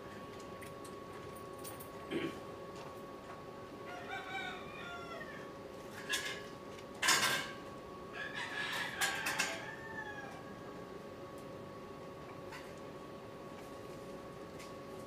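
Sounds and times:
faint steady hum: 0:00.0 - 0:15.0
rooster crowing: 0:03.8 - 0:05.6, 0:08.1 - 0:10.8.

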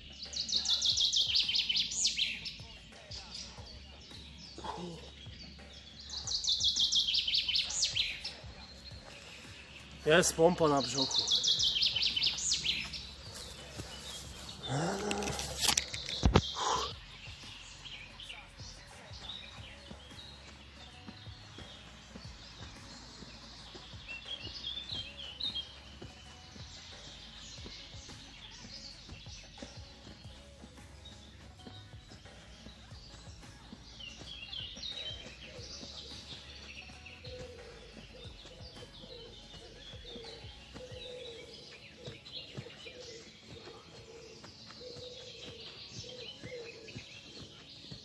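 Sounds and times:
birds chirping and singing: 0:00.0 - 0:48.0
faint music with a beat: 0:00.0 - 0:48.0
pigeon cooing: 0:40.1 - 0:47.4.

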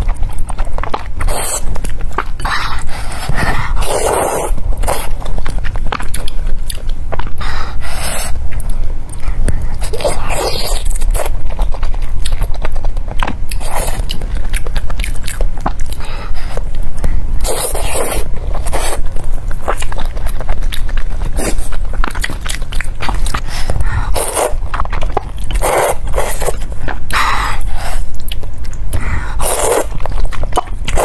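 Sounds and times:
wet chewing: 0:00.0 - 0:31.0
noodles being slurped: 0:29.4 - 0:29.9.

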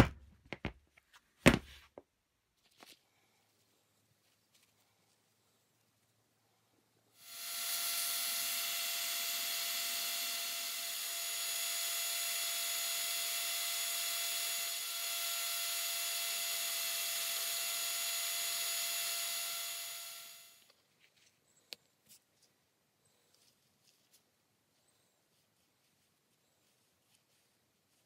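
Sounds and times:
electric drill motor whine: 0:07.2 - 0:20.7.

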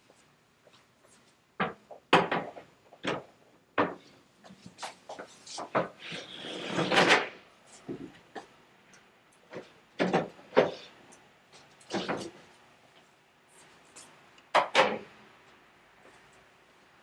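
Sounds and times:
table leaf sliding scrape: 0:06.0 - 0:07.3.

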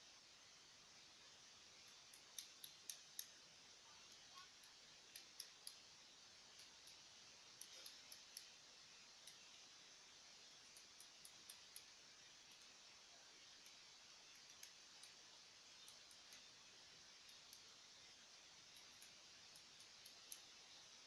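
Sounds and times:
scissors snipping hair: 0:02.1 - 0:03.4, 0:04.0 - 0:05.8, 0:07.6 - 0:08.5, 0:10.7 - 0:11.9.

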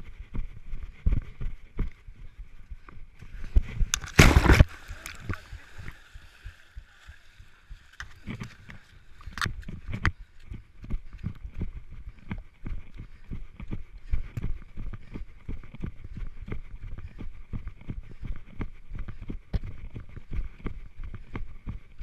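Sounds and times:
water splashing and sloshing: 0:03.4 - 0:10.7
scrambling up grassy bank: 0:03.6 - 0:06.2.

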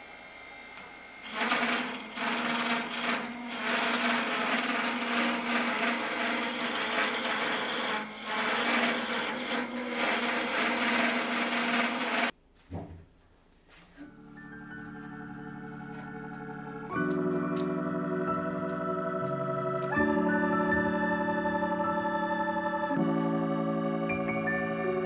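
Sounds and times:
lathe motor hum: 0:00.0 - 0:12.3
chisel scraping wood on lathe: 0:01.2 - 0:12.3.

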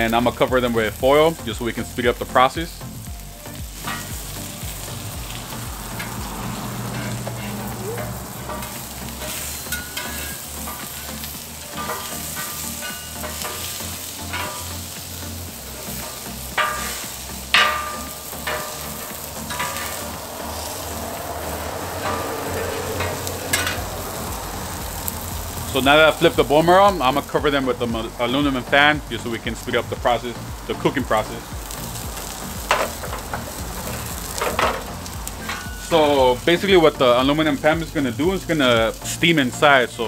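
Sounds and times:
food sizzling on griddle: 0:00.0 - 0:40.0
spatula scraping griddle: 0:03.4 - 0:26.3, 0:31.6 - 0:38.5.

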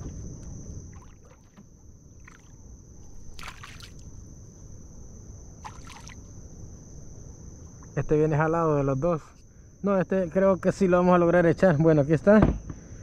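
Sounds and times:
fish splashing in water: 0:00.9 - 0:02.6, 0:03.2 - 0:04.1, 0:05.6 - 0:06.3.

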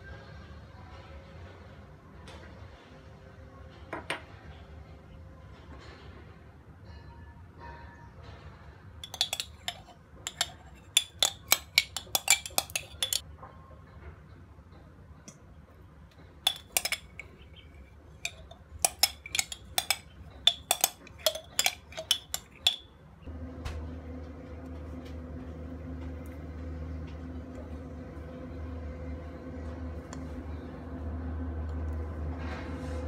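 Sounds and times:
metal spoon clinking against jar: 0:09.0 - 0:13.2, 0:16.5 - 0:22.9.

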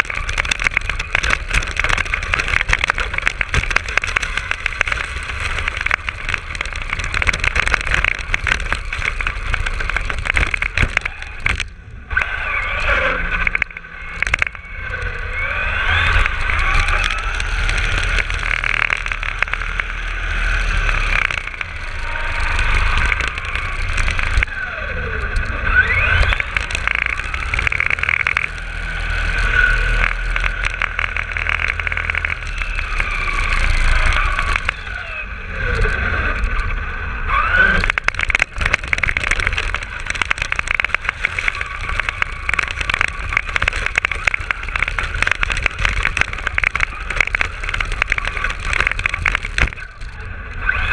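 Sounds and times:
tires crackling on snow: 0:00.0 - 0:50.9
wind and road noise: 0:00.0 - 0:50.9
rc car motor whining: 0:12.1 - 0:18.4, 0:19.1 - 0:40.1, 0:49.7 - 0:50.9.

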